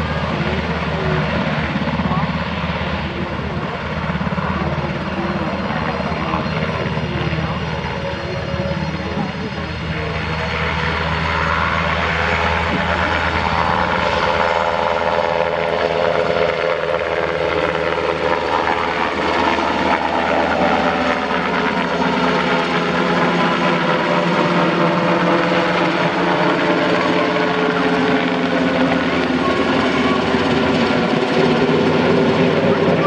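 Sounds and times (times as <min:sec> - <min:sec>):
helicopter rotor and turbine noise: 0:00.0 - 0:33.0.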